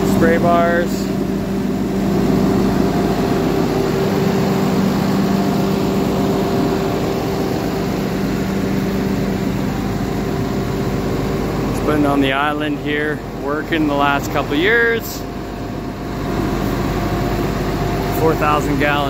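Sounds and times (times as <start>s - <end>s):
diesel engine idling: 0.0s - 19.0s.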